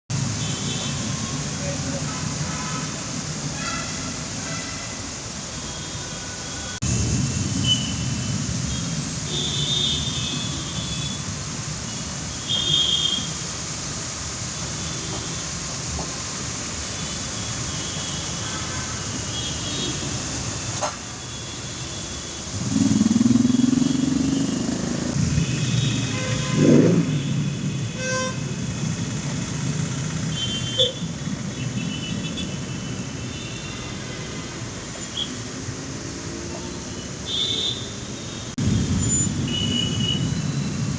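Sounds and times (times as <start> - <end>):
traffic rumble: 0.1 - 12.6, 19.3 - 40.9
heavy rain: 0.1 - 37.8, 38.4 - 40.9
tyres hissing through water: 0.2 - 26.5
car horn: 25.3 - 28.4.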